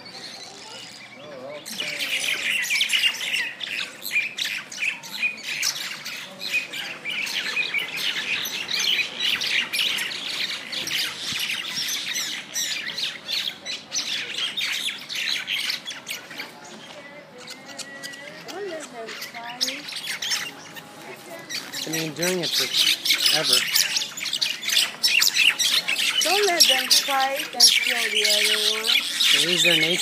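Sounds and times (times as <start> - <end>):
birds squawking and screeching: 0.0 - 30.0.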